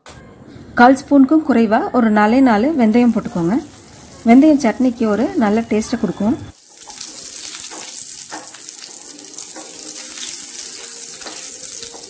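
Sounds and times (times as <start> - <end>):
seeds sizzling in hot oil: 2.8 - 12.0
mustard seeds popping: 6.7 - 12.0.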